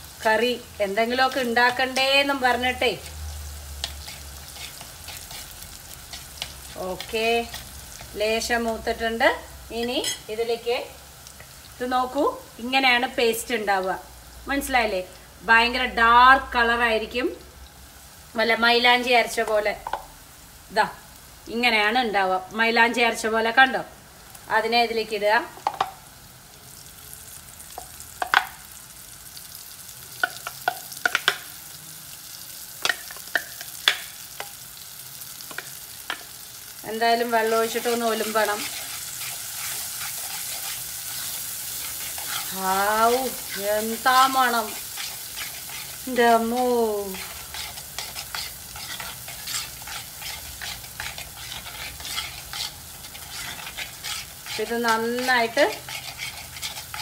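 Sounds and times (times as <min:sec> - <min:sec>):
shallots and garlic sizzling: 0:00.0 - 0:57.0
spoon scraping a clay pot: 0:03.8 - 0:08.1, 0:38.1 - 0:42.6, 0:44.5 - 0:46.1, 0:47.1 - 0:57.0
sharp popping oil: 0:30.2 - 0:31.5.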